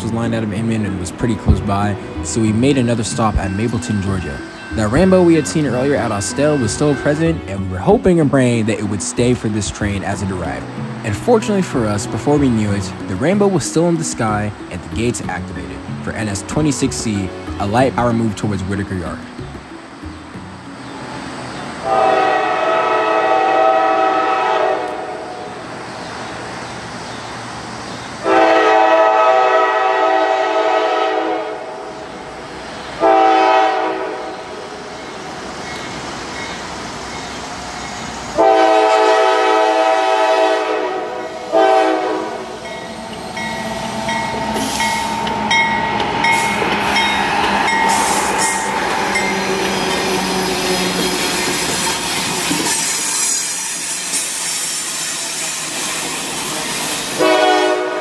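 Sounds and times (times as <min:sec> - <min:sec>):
locomotive engine and wheel noise: 0:00.0 - 0:23.2, 0:41.3 - 0:57.4
locomotive air horn blasts: 0:21.8 - 0:25.5, 0:28.2 - 0:32.0, 0:33.0 - 0:34.6, 0:38.4 - 0:42.7, 0:57.1 - 0:58.0.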